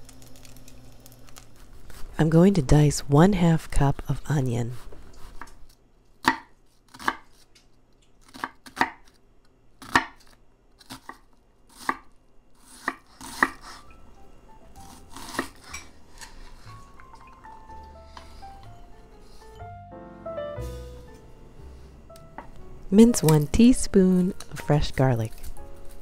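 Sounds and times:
knife chopping on wooden board: 0:06.2 - 0:07.3, 0:12.7 - 0:13.7.

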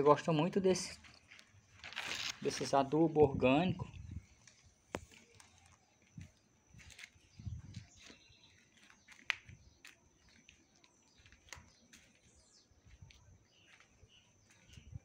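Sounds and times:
bird chirps: 0:06.8 - 0:15.0.

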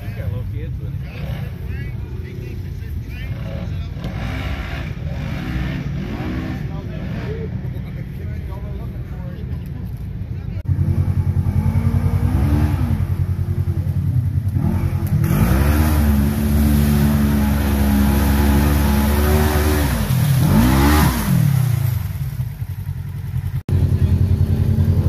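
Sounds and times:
engine revving hard: 0:03.3 - 0:07.5, 0:10.8 - 0:13.2, 0:14.6 - 0:22.0
mud and water splashing: 0:09.5 - 0:25.0.

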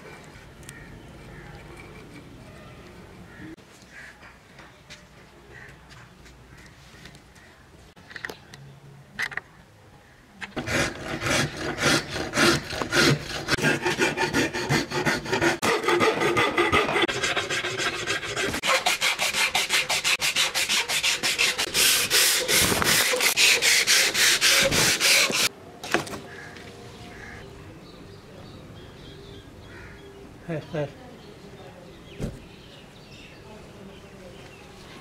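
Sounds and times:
rasp scraping wood: 0:10.6 - 0:25.5
sanding belt rubbing wood: 0:10.6 - 0:25.5.

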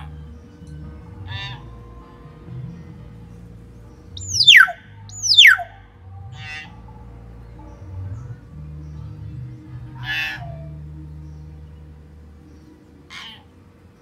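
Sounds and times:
short nasal bird call: 0:04.2 - 0:05.6.

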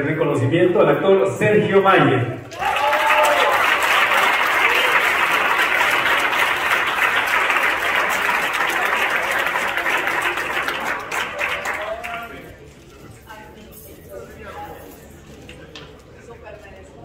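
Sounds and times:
audience applause: 0:02.5 - 0:12.4.

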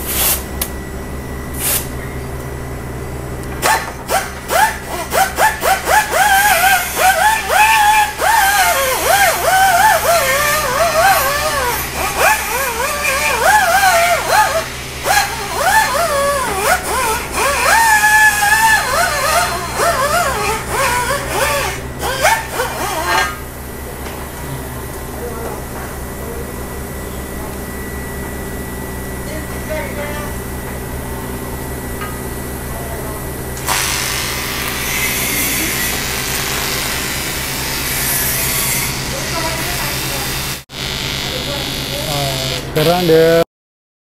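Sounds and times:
welding arc hissing: 0:00.0 - 0:00.6, 0:01.5 - 0:02.0
steady low hum: 0:00.0 - 0:36.4.

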